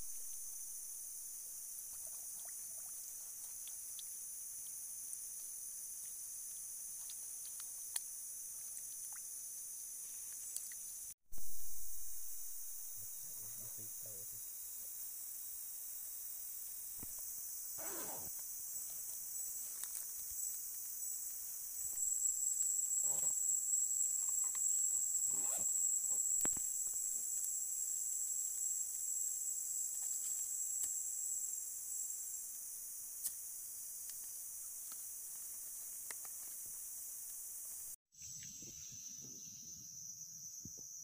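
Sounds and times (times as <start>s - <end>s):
insect chorus: 0.0s - 41.0s
shrill insect tone: 9.7s - 18.4s, 21.8s - 32.4s, 37.4s - 41.0s.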